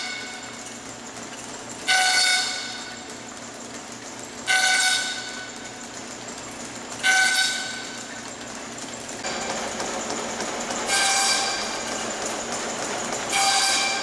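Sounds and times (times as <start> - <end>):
machine running: 0.0 - 14.0
lathe cutter whine: 9.2 - 14.0.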